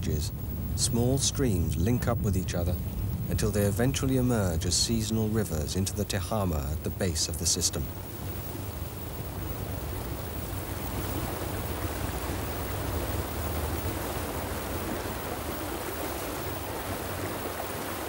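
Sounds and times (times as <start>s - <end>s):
river water rushing: 2.4s - 18.0s.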